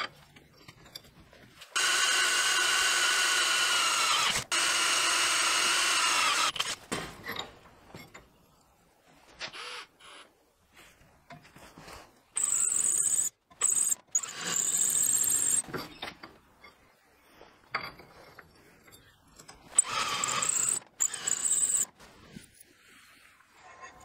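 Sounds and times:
drill whining into steel: 1.8s - 6.8s, 12.4s - 15.6s, 19.8s - 21.9s.

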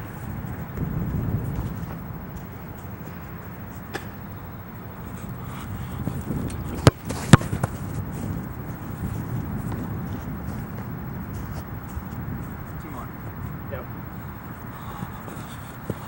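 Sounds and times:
soccer ball thumps: 0.0s - 4.5s, 5.7s - 12.8s, 14.9s - 16.0s.

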